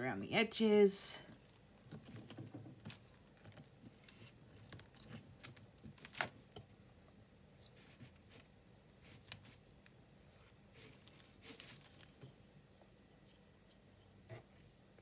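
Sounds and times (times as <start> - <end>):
paper handling: 1.4 - 6.5, 7.8 - 12.2.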